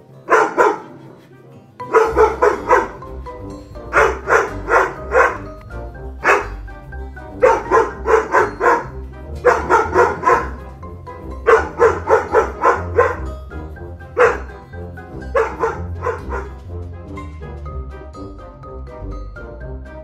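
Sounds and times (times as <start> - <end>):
background music with deep bass: 0.0 - 20.0
dog barking: 0.2 - 1.2, 1.8 - 3.1, 3.8 - 5.6, 6.2 - 6.6, 7.4 - 10.7, 11.4 - 13.3, 14.2 - 14.6, 15.2 - 16.6.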